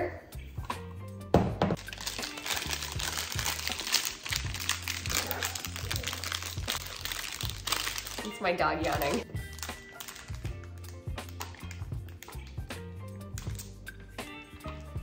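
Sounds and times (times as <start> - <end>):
background music: 0.0 - 15.0
plastic wrapping crinkling: 1.8 - 12.4.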